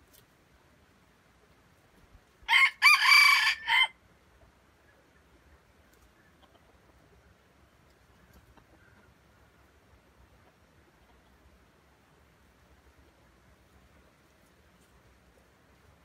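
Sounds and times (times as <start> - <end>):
rooster crowing: 2.5 - 4.0.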